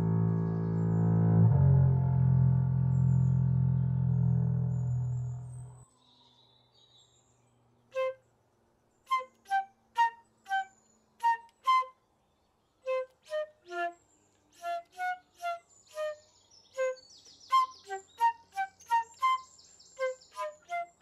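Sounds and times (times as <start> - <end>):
solo flute short notes: 9.1 - 12.0, 12.9 - 14.0, 14.6 - 21.0.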